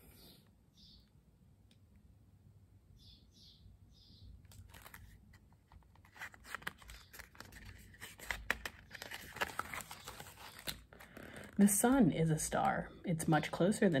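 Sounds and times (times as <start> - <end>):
paper page rustling: 4.5 - 11.8.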